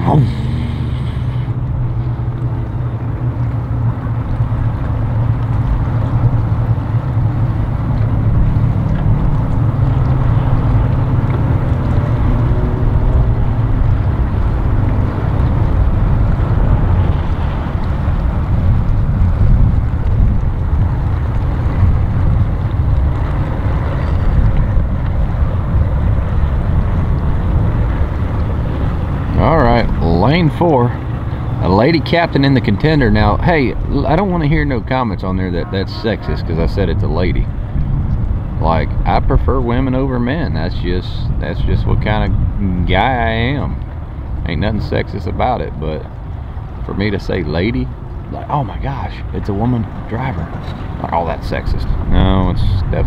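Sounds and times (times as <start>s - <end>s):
outboard motor idling: 0.0s - 39.8s.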